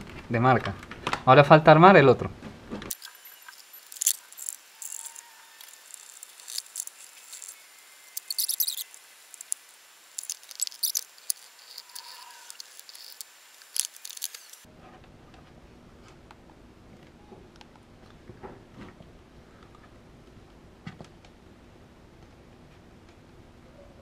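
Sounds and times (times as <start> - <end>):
plastic parts clicking and rattling: 2.9 - 7.6, 8.2 - 9.6, 10.2 - 14.7.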